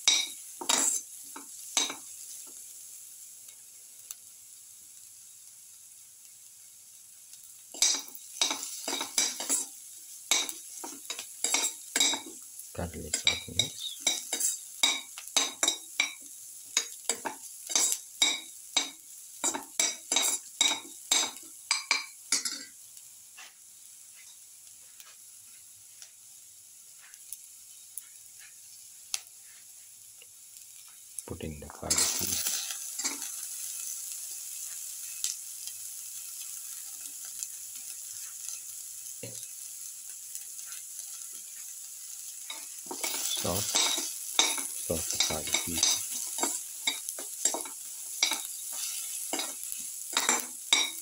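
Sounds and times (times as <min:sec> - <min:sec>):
metal spoon scraping a pan: 0:00.0 - 0:01.1, 0:07.7 - 0:12.3, 0:13.1 - 0:16.2, 0:16.8 - 0:22.7, 0:31.9 - 0:33.4, 0:42.4 - 0:51.0
onions sizzling in a pan: 0:00.0 - 0:51.0.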